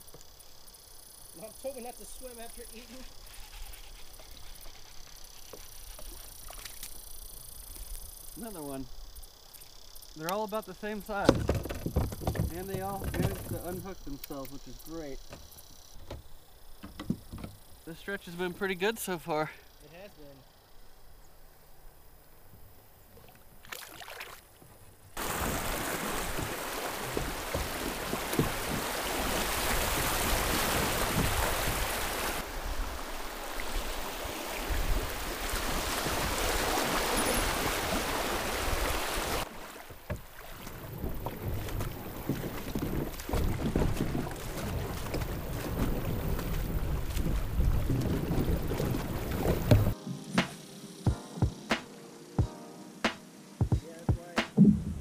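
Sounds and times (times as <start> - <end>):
river water rushing: 25.2 - 50.0.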